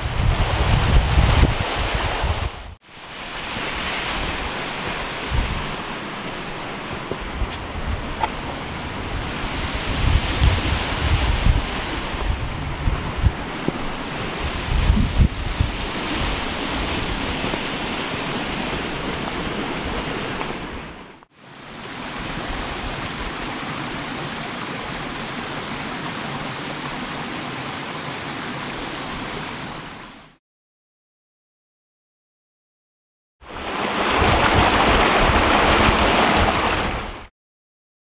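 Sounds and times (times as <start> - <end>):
wind buffeting microphone: 0.0 - 2.8, 3.4 - 21.0, 34.0 - 37.2.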